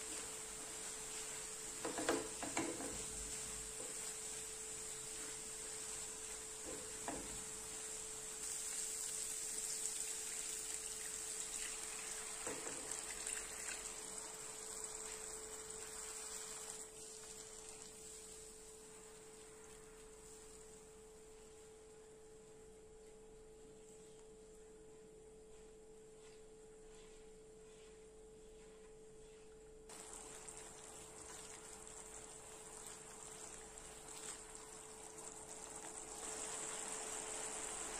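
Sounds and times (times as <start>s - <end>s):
food sizzling in a pan: 0.0s - 21.7s, 29.9s - 37.9s.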